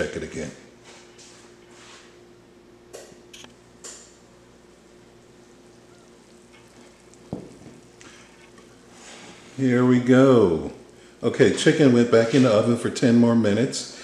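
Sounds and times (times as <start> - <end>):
faint steady hum: 0.0 - 14.0
chicken sizzling in a frying pan: 4.7 - 12.2.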